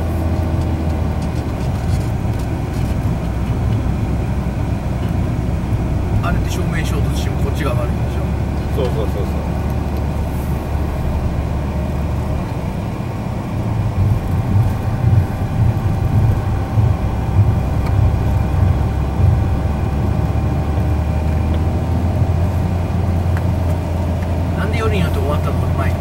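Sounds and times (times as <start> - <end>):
car engine and road rumble: 0.0 - 26.0
faint steady whine: 0.0 - 26.0.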